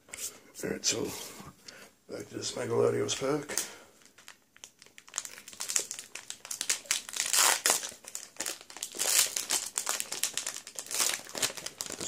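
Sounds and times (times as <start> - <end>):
foil wrapper crinkling: 3.2 - 12.0.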